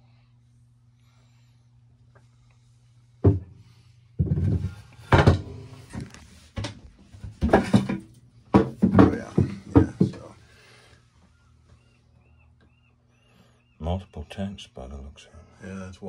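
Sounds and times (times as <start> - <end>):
wooden floorboards knocking: 4.2 - 10.4.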